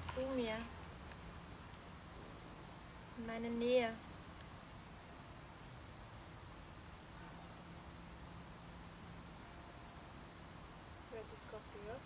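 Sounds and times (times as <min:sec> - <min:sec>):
background hiss: 0:00.0 - 0:12.0
cricket trilling: 0:00.0 - 0:12.0.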